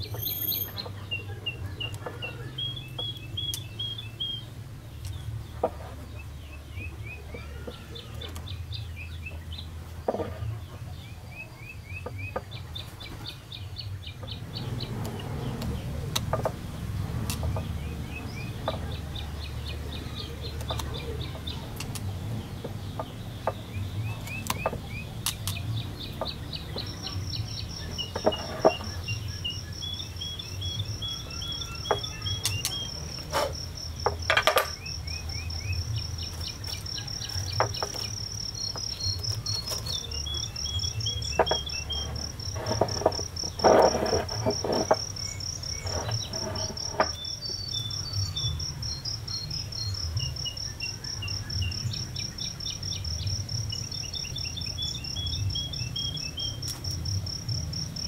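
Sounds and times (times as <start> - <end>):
cricket trilling: 0.0 - 9.4, 14.2 - 58.0
lower cricket chirps: 0.0 - 10.2, 11.3 - 58.0
hands handling bonsai and pot: 10.0 - 10.7, 14.6 - 47.6.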